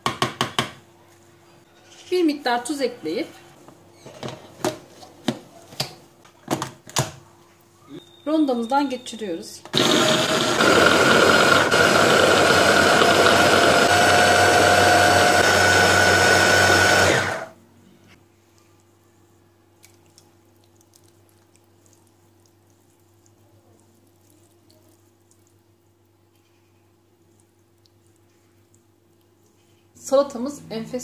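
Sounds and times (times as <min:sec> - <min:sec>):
hand blender running: 0:09.7 - 0:17.5.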